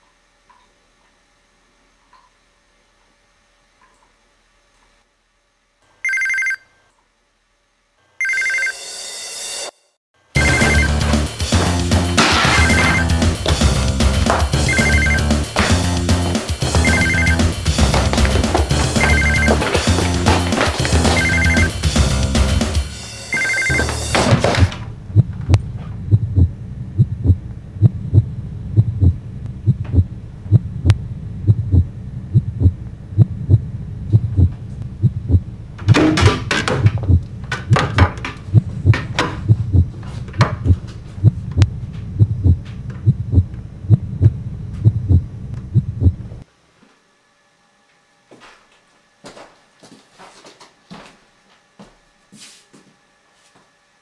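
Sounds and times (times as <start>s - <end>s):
telephone ringing: 6.0s - 6.8s, 8.1s - 8.8s, 10.4s - 11.3s, 12.4s - 13.4s, 14.5s - 15.6s, 16.6s - 17.7s, 18.3s - 21.9s, 23.2s - 24.1s
deep hum: 10.4s - 36.0s, 36.8s - 46.4s
low thumping pulse: 24.8s - 35.8s, 36.8s - 37.3s, 38.5s - 40.0s, 40.6s - 46.4s.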